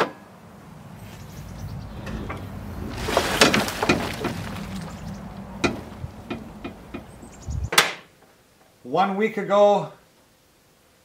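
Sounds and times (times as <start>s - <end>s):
plastic cargo bed rattling: 2.1s - 7.2s
sharp clunk: 5.6s - 7.1s.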